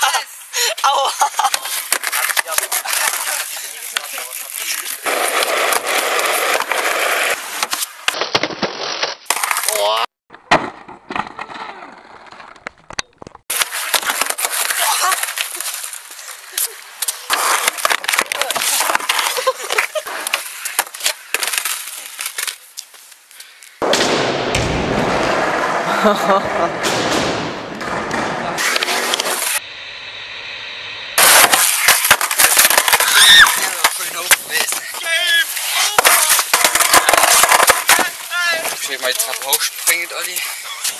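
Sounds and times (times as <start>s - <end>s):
skateboard wheels rolling on asphalt: 1.2s - 9.7s, 10.3s - 40.9s
skateboard clattering on concrete: 1.4s - 9.9s, 31.2s - 40.0s.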